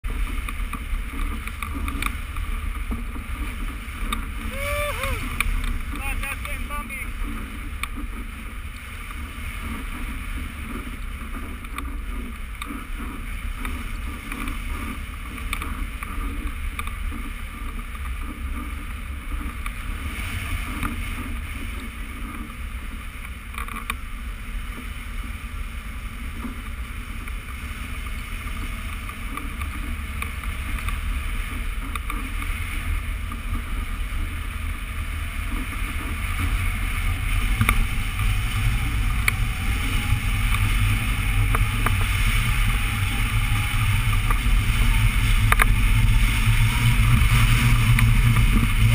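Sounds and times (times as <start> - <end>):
wind buffeting microphone: 0.0 - 48.9.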